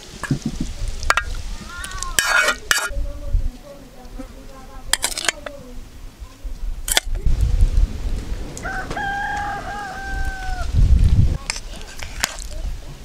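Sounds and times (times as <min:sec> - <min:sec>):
low rumbling noise: 0:05.5 - 0:11.4
rooster crowing: 0:08.6 - 0:10.8.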